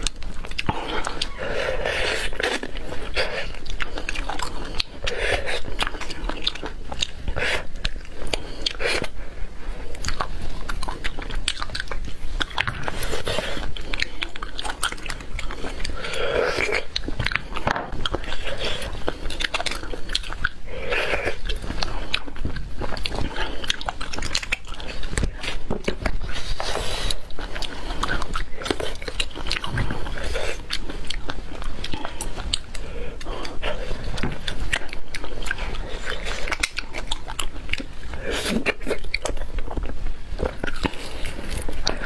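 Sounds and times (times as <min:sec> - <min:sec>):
wet chewing and mouth clicks: 0:00.0 - 0:42.0.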